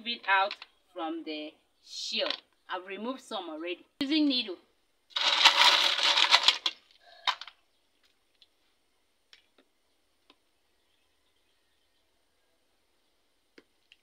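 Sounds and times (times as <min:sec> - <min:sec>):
shells clattering in metal pot: 0:05.1 - 0:07.5.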